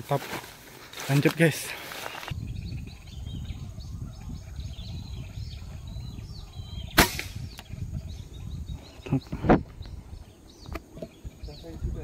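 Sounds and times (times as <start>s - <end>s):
birds chirping: 0.0s - 12.0s
air rifle shot: 6.9s - 7.6s.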